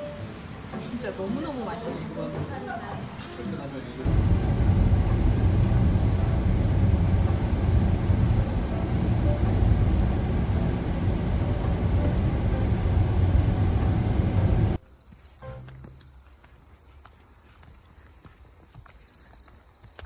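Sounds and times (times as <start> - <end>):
car driving on open road: 4.0 - 14.8
faint ticks: 4.0 - 14.8.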